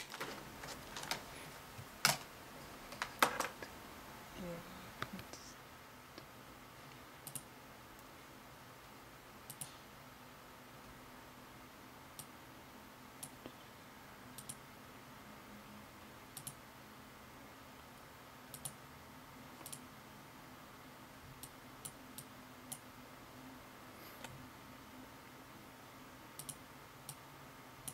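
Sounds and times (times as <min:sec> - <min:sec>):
computer mouse clicking: 0:06.9 - 0:08.1, 0:09.5 - 0:09.8, 0:14.3 - 0:14.6, 0:16.4 - 0:16.6, 0:18.5 - 0:18.8, 0:19.6 - 0:19.8, 0:26.4 - 0:27.2.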